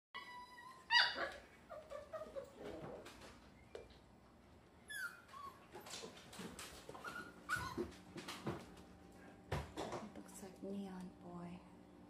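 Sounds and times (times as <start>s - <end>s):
puppies whimpering: 0.2s - 3.7s, 4.8s - 6.1s, 7.0s - 8.0s.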